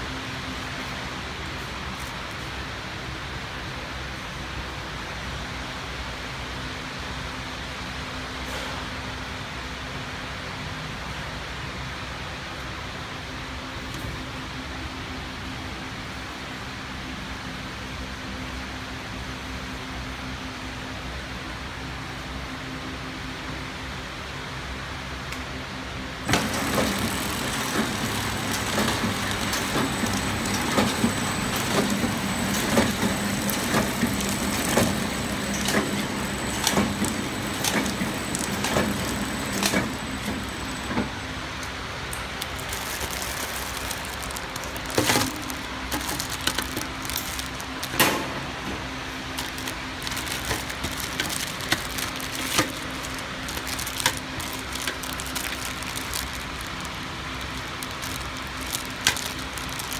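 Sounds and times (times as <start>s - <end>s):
packing machine running: 26.2s - 59.9s
machine clicks: 26.3s - 41.1s, 49.4s - 56.9s.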